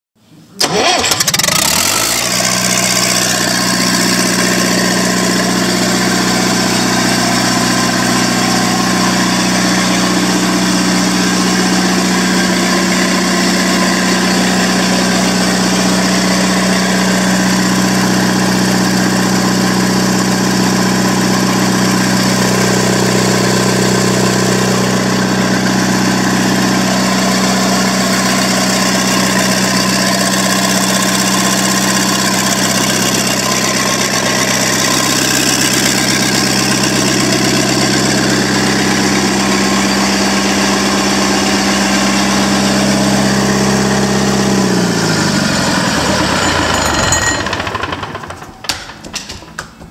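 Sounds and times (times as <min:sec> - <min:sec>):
diesel engine starting and idling: 0:00.5 - 0:49.5
starter motor cranking: 0:00.6 - 0:04.4, 0:46.0 - 0:49.0.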